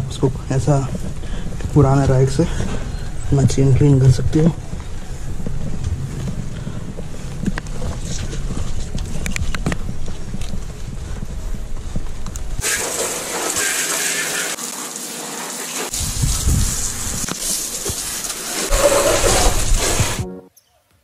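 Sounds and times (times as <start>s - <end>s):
handling rumble: 0.0s - 12.6s
hose spraying water: 12.6s - 20.3s.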